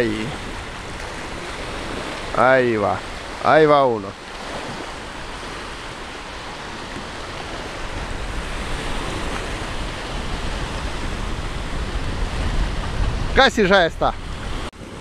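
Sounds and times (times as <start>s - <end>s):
small waves breaking on shore: 0.0s - 15.0s
wind rumbling on microphone: 0.0s - 15.0s.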